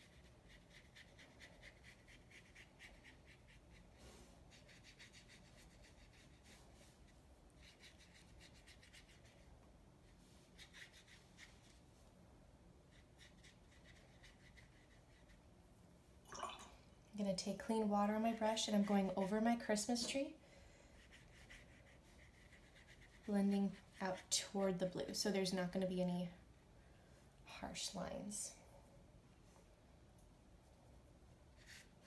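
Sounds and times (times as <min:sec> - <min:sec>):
brush rubbing on wet paper: 0:00.0 - 0:12.1, 0:12.8 - 0:15.5, 0:20.9 - 0:24.4, 0:31.5 - 0:32.0.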